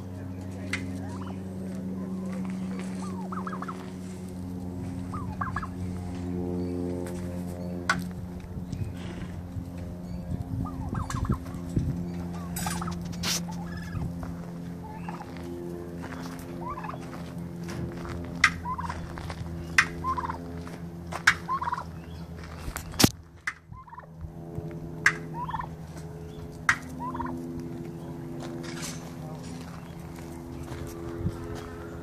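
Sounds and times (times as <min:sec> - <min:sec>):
steady low hum: 0:00.0 - 0:32.0
turkey gobbling: 0:01.0 - 0:01.4, 0:02.1 - 0:04.4, 0:05.0 - 0:06.0, 0:10.6 - 0:11.6, 0:12.4 - 0:14.0, 0:14.8 - 0:15.4, 0:16.2 - 0:17.2, 0:18.4 - 0:20.5, 0:21.2 - 0:22.1, 0:23.4 - 0:24.1, 0:25.0 - 0:25.8, 0:26.7 - 0:28.3.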